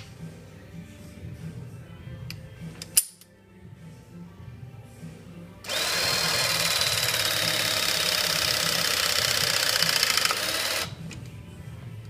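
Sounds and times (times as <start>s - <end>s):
hydraulic crimping tool whine: 5.7s - 11.0s.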